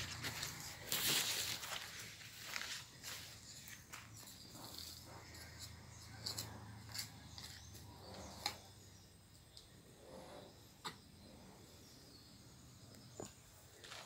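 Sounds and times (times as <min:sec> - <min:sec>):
soil and leaves rustling: 0:00.0 - 0:09.7, 0:13.0 - 0:14.0.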